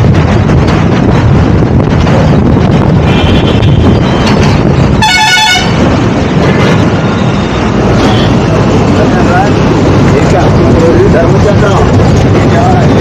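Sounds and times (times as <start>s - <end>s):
wind buffeting microphone: 0.0s - 13.0s
vehicle horn blaring: 3.0s - 4.3s, 4.9s - 5.9s, 7.0s - 8.5s.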